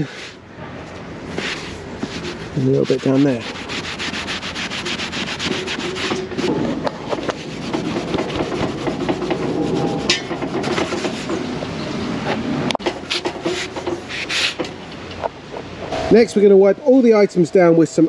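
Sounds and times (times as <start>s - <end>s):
sponge pad scrubbing leather: 1.4s - 9.2s.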